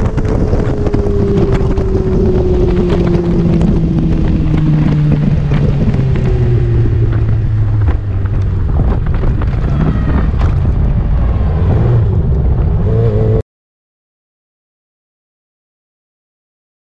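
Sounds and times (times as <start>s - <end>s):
wind buffeting microphone: 0.0s - 13.4s.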